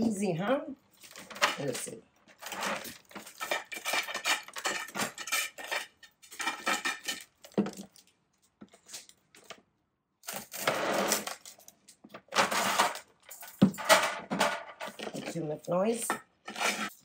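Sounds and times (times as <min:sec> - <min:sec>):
metal tool scraping in pot: 0:01.6 - 0:07.3, 0:16.0 - 0:17.0.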